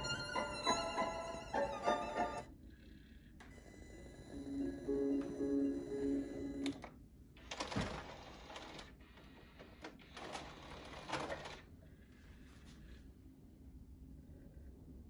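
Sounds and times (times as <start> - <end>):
music from stereo: 0.0 - 2.5, 4.3 - 6.6
cd changer mechanism whirring: 3.4 - 11.5.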